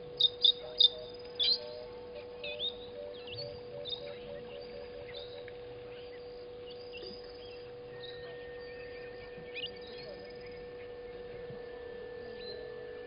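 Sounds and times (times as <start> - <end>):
bird chirps and calls: 0.0 - 11.4
high steady tone: 0.0 - 13.0
steady droning tones: 0.0 - 13.0.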